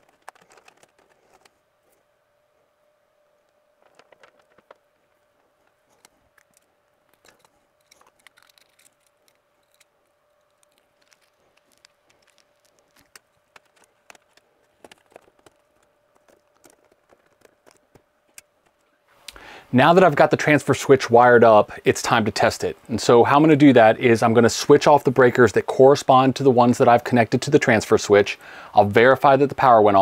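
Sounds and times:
faint steady hum: 0.0s - 30.0s
tools clicking on wires: 5.9s - 18.9s.

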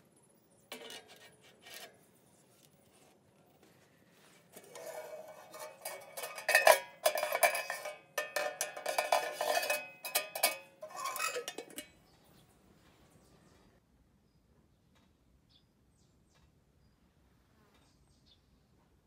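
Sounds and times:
wire rack rattling against metal: 4.6s - 11.9s.

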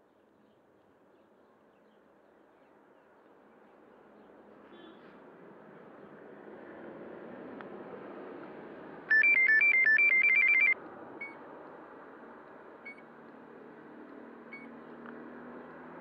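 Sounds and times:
electronic beeping melody: 9.1s - 10.8s
short electronic beeps: 9.1s - 11.4s.

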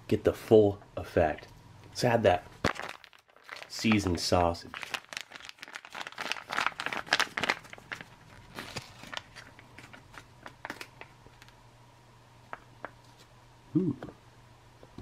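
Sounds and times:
foil pouch crinkling: 2.6s - 11.6s.

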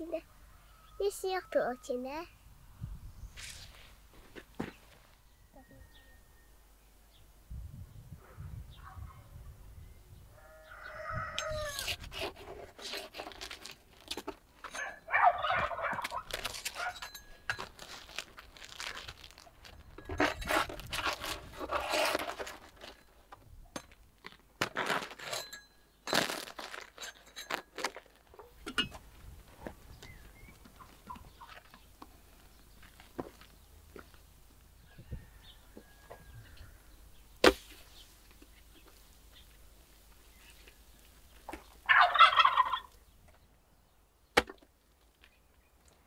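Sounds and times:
rooster crowing: 5.3s - 6.6s, 10.4s - 11.9s, 34.9s - 36.9s
hens clucking: 14.8s - 17.0s, 30.6s - 31.8s, 41.5s - 43.0s.

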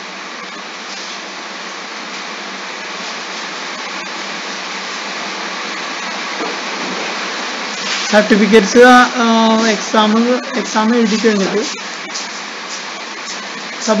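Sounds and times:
steady rushing hiss: 0.0s - 14.0s.

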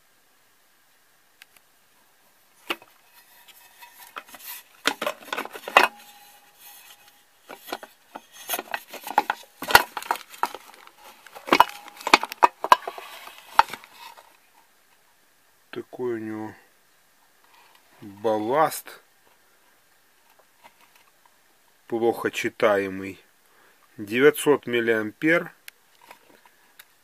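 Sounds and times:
metal housing handled on tabletop: 2.7s - 14.1s.

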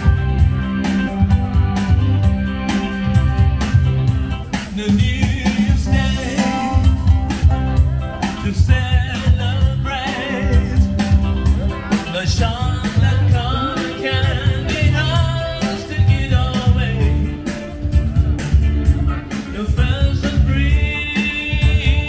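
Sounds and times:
band playing guitar bass and drums: 0.0s - 22.0s
person singing: 4.5s - 22.0s.

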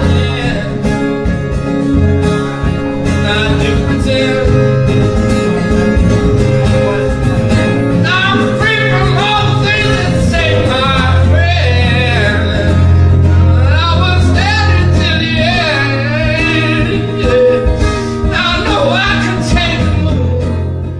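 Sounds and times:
person singing: 0.0s - 1.3s, 2.6s - 20.9s
instrumental backing with bass line: 0.0s - 20.9s.

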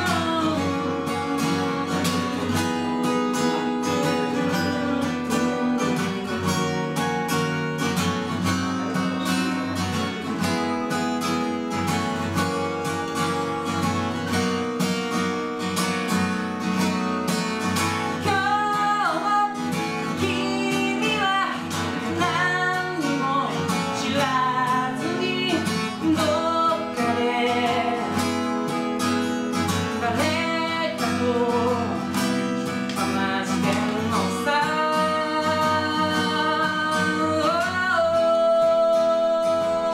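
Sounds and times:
man singing: 0.0s - 2.5s, 32.9s - 39.9s
acoustic guitar strumming: 0.0s - 39.9s.

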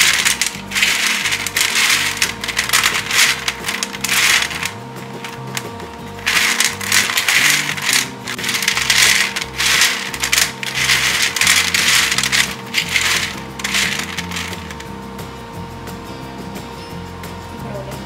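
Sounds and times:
background music: 0.0s - 18.0s.

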